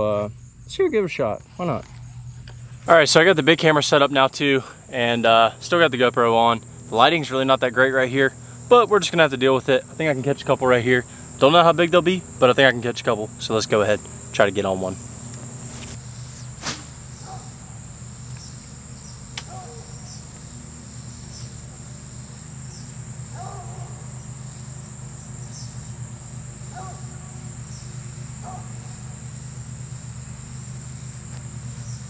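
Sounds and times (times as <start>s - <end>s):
crickets chirping: 0.0s - 32.0s
low steady hum: 0.0s - 32.0s.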